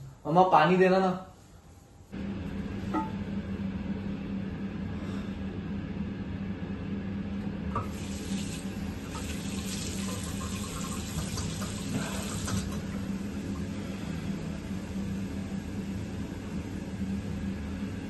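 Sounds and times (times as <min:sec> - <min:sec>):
steady low hum: 0:00.0 - 0:09.6, 0:11.6 - 0:18.0
hands washing face: 0:07.8 - 0:12.8.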